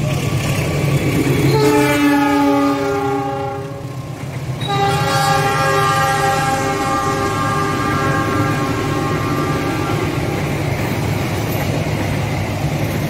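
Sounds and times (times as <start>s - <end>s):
passing train rumble: 0.0s - 13.0s
locomotive air horn: 1.4s - 10.2s.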